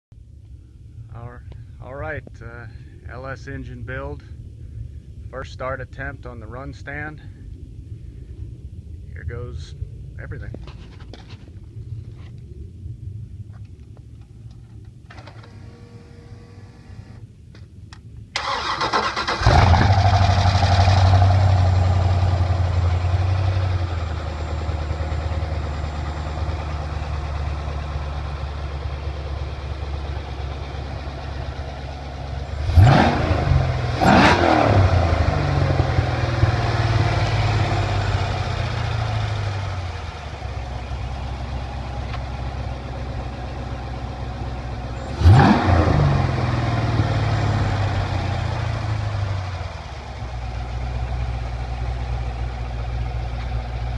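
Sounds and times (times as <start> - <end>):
engine cranking and starting: 15.1 - 17.2, 18.4 - 21.4
engine idling: 18.3 - 53.9
engine throttle blips: 18.3 - 53.9.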